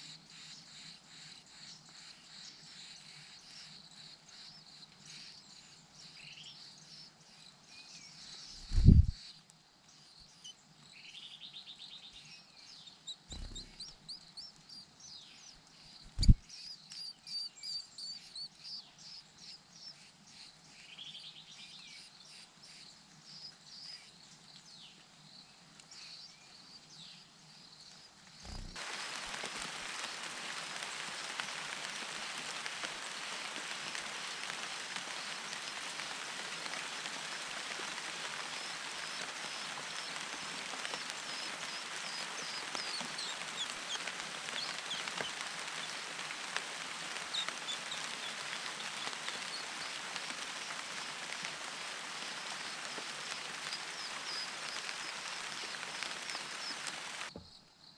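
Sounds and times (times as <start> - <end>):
birds chirping: 0.3 - 9.4, 10.0 - 20.7, 27.8 - 30.2, 38.4 - 57.7
rain hiss: 2.4 - 20.0, 20.6 - 57.4.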